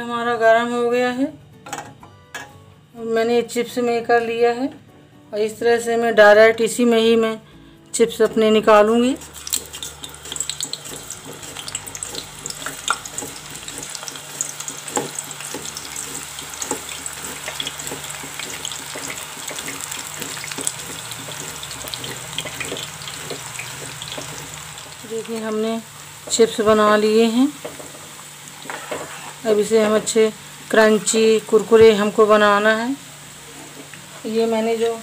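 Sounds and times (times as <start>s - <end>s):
hot oil sizzling and crackling: 8.8s - 35.0s.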